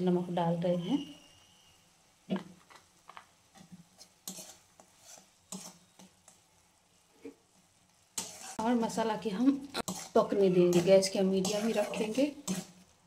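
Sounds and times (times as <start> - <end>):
faint sizzle: 0.0 - 13.0
spatula scraping metal pan: 3.5 - 6.4, 8.2 - 9.0, 9.8 - 13.0.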